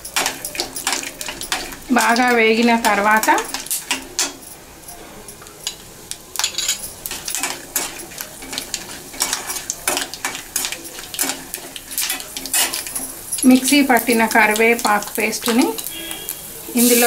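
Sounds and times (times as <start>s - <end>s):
faint sizzle: 0.0s - 17.0s
metal spatula scraping a pan: 5.2s - 17.0s.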